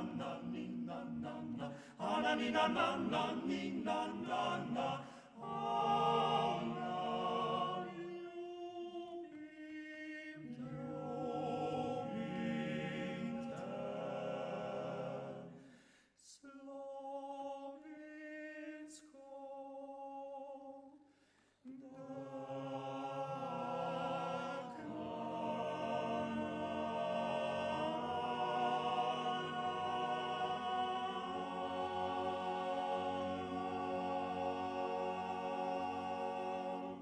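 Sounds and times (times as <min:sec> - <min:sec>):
male choir singing a cappella: 0:00.0 - 0:15.7, 0:16.3 - 0:20.9, 0:21.7 - 0:37.0.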